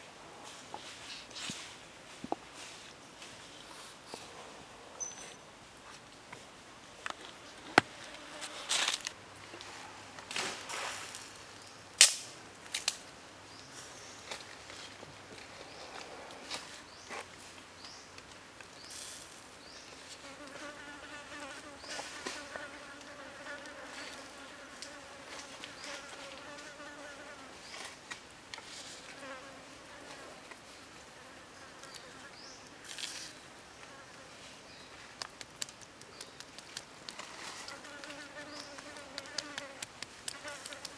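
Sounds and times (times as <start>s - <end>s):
rustles: 0.0s - 40.9s
flying insect buzzing: 37.6s - 40.9s.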